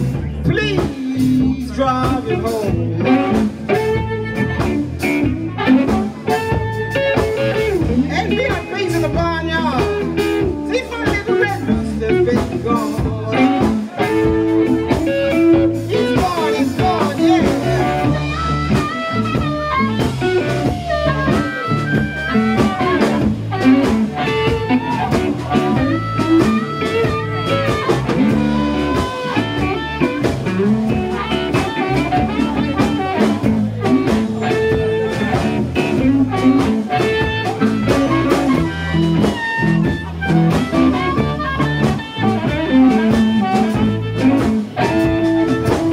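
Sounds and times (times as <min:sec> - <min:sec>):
amplified harmonica wailing: 0:00.0 - 0:45.9
electric guitars: 0:00.0 - 0:45.9.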